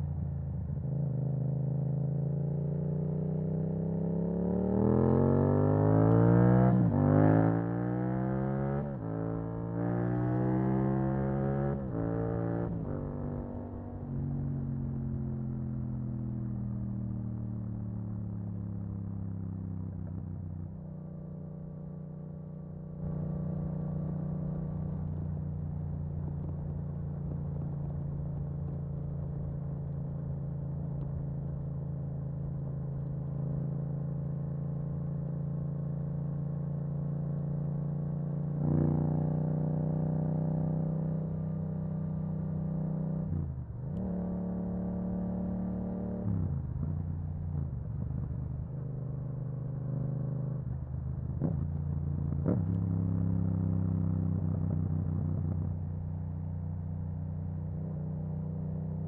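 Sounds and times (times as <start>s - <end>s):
motorcycle engine while riding: 0.0s - 59.0s.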